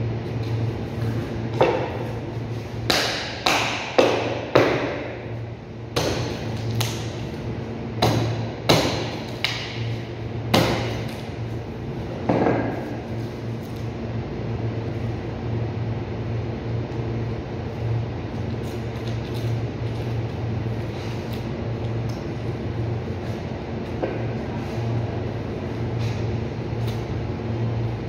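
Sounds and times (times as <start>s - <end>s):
meat cleaver chopping: 6.0s - 7.0s, 8.0s - 9.7s.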